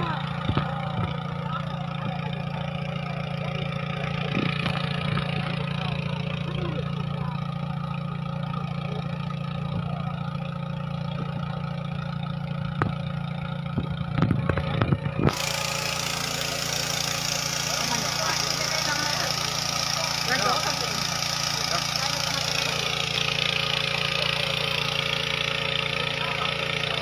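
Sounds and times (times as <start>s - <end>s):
small engine running: 0.0s - 27.0s.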